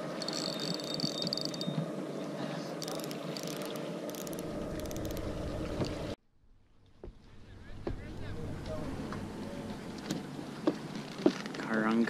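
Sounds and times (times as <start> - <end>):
steady low hum: 0.0 - 11.2
reel drag clicking: 0.1 - 1.8, 2.8 - 5.3
fishing reel drag buzz: 0.2 - 1.8, 2.8 - 5.3.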